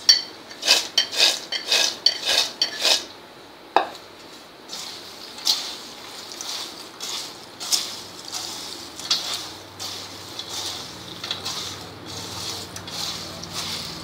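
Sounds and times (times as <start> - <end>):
dry snack rattling in steel bowl: 5.4 - 14.0.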